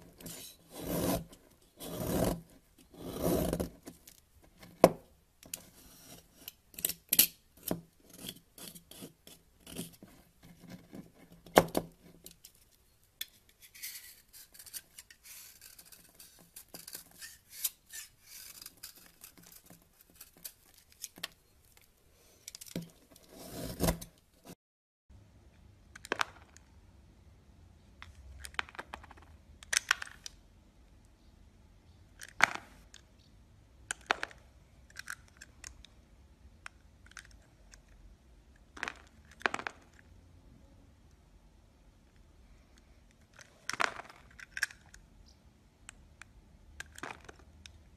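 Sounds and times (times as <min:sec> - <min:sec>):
knife scraping soap: 0:00.1 - 0:04.8, 0:05.5 - 0:12.4, 0:13.2 - 0:24.6.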